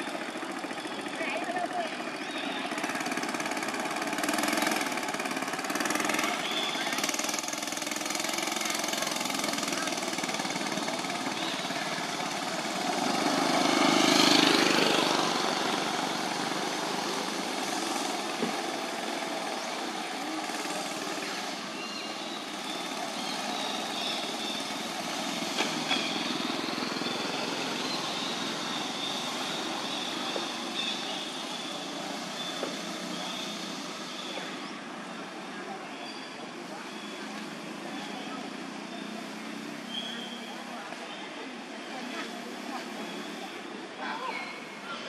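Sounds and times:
vehicle engine passing: 0.0s - 35.8s
outdoor background noise: 0.0s - 45.0s.

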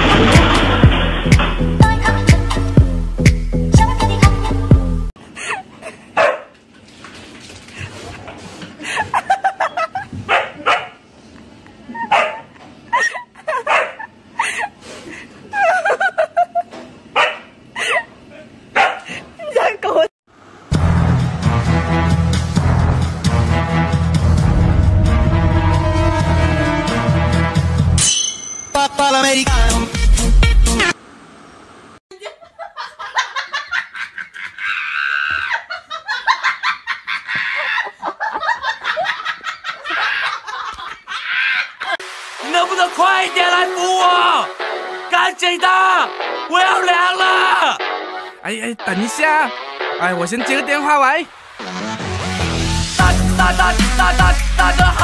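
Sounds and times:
person laughing hard: 8.8s - 10.3s, 12.9s - 14.8s, 15.4s - 16.8s, 32.1s - 42.0s.

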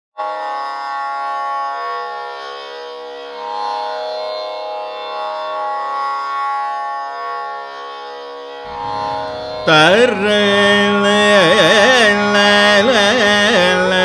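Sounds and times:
steady drone: 8.7s - 12.2s.

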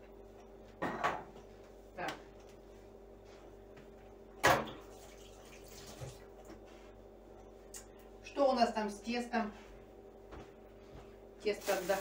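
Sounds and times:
kitchen tap running into sink: 4.6s - 6.3s.

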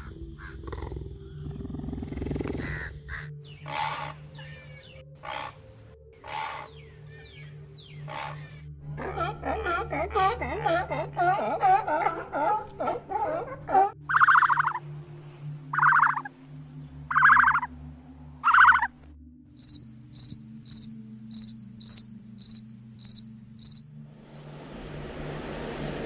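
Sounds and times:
buzzing insect calls: 14.1s - 14.8s, 15.7s - 16.3s, 17.1s - 17.7s, 19.6s - 24.6s
grasshopper chirps: 14.1s - 14.8s, 19.6s - 24.5s
cockroaches hissing: 19.6s - 23.8s.

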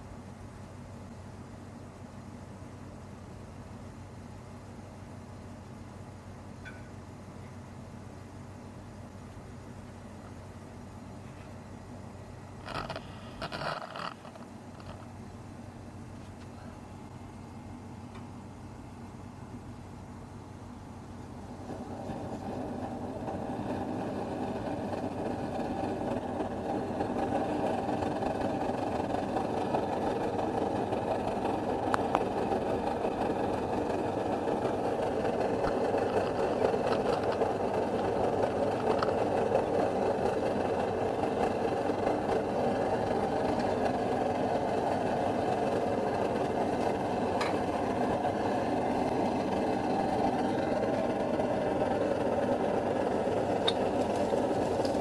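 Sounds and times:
camping stove burner rushing: 12.5s - 15.2s, 21.3s - 55.0s.

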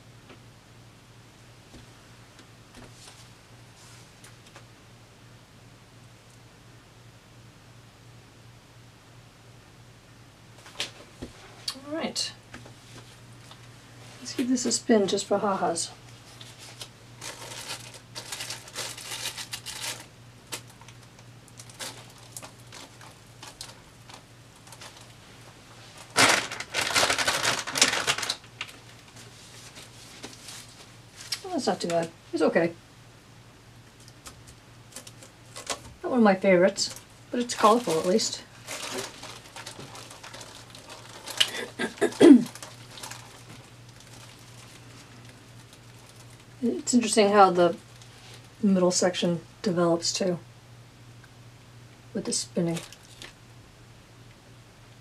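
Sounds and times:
steady low hum: 0.0s - 55.0s
plastic sheeting crinkling: 16.1s - 31.6s, 34.9s - 35.9s, 36.8s - 46.6s, 52.6s - 53.4s
dense crackling: 26.0s - 29.1s, 36.8s - 46.6s.

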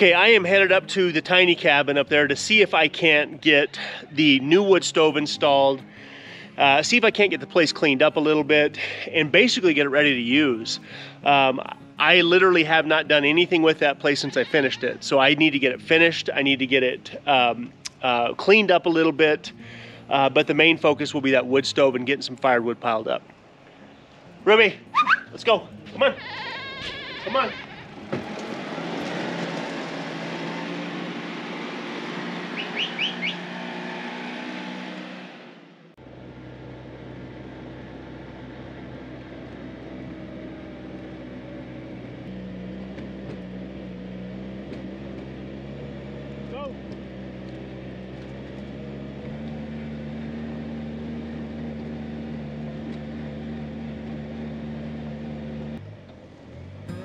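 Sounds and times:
utility vehicle engine running: 27.9s - 33.8s, 36.0s - 57.0s
bird chirping: 32.5s - 33.4s.

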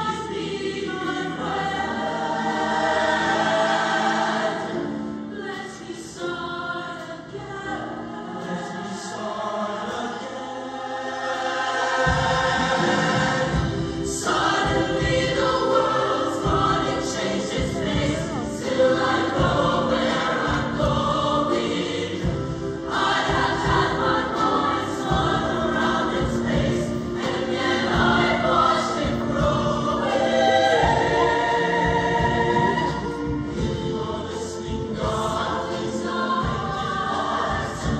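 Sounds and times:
choir singing: 0.0s - 37.9s.

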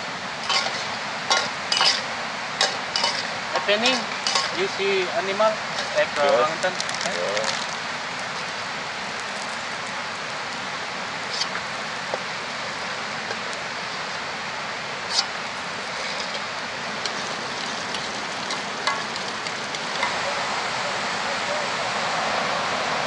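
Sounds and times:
peanuts sizzling in oil: 0.0s - 20.8s.

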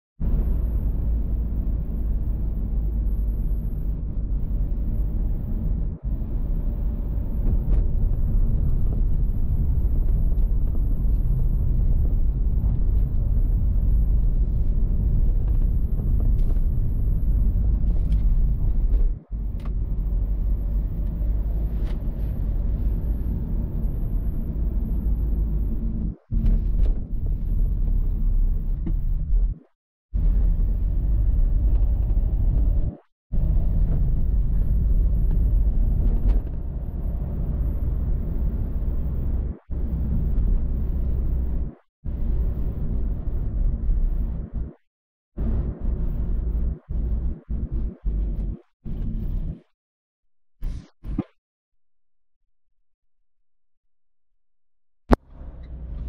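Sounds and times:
road noise: 0.2s - 29.0s, 30.2s - 44.5s
car engine rumble: 0.2s - 29.6s, 30.2s - 44.8s, 45.4s - 49.6s, 55.1s - 56.0s.

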